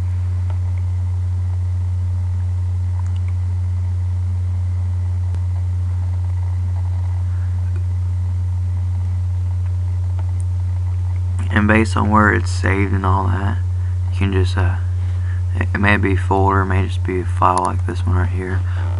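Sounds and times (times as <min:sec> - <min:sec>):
steady low hum: 0:00.0 - 0:18.9
faint clicks: 0:03.0 - 0:03.4.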